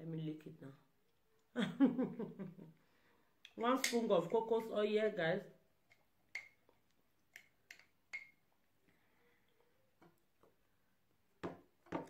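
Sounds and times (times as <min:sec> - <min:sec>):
metal spoon clinking on jar: 0:03.6 - 0:04.1, 0:07.3 - 0:08.4.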